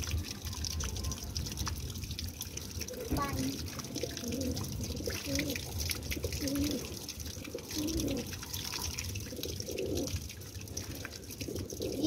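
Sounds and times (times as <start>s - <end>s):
pigeons cooing: 3.9s - 12.0s.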